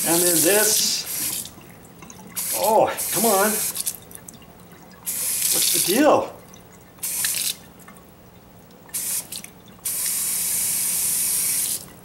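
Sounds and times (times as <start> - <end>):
water running into sink: 0.0 - 12.0
loud hissing water surges: 2.4 - 3.7.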